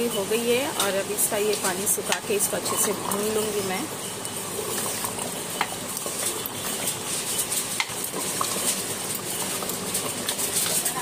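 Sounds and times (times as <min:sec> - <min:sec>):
curry bubbling and sizzling: 0:00.0 - 0:11.0
ladle stirring in a pot: 0:00.0 - 0:11.0.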